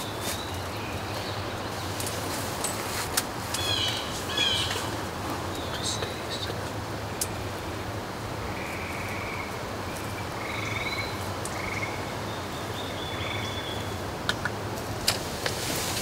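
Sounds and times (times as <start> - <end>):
background hiss: 0.0 - 16.0
frogs trilling: 8.4 - 13.9.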